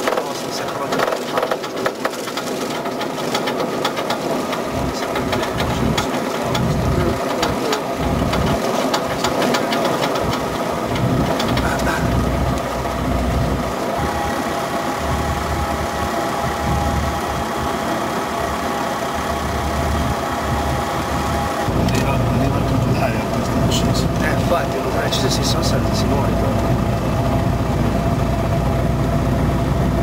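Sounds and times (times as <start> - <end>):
propeller aircraft engine running: 0.0 - 30.0
wind buffeting microphone: 15.0 - 18.6, 19.2 - 24.3.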